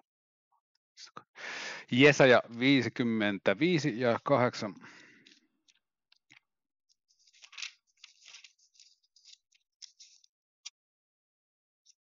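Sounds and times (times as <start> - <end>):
paper pages rustling: 7.1 - 10.3.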